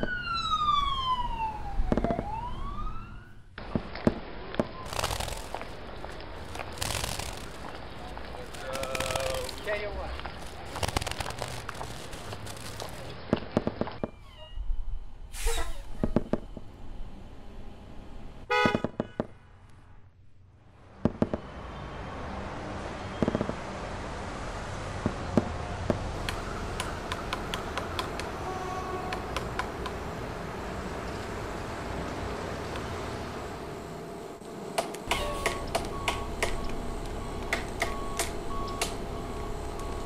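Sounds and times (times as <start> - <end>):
street noise: 0.0 - 40.0
car horn honking: 18.5 - 19.2
scattered clicks and knocks: 25.0 - 28.3, 29.1 - 30.0, 34.8 - 39.0.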